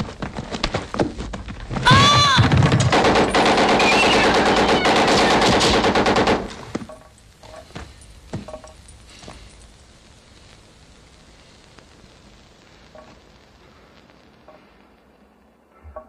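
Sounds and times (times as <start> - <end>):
automatic gunfire: 2.4 - 6.7
single gunshots: 2.5 - 6.7.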